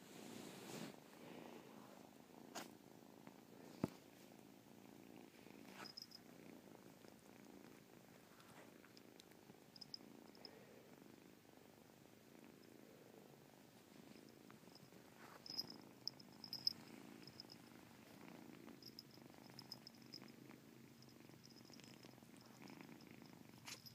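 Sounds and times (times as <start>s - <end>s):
kitten purring: 0.1s - 23.9s
faint high ticks and clicks: 8.4s - 10.6s, 14.2s - 17.7s.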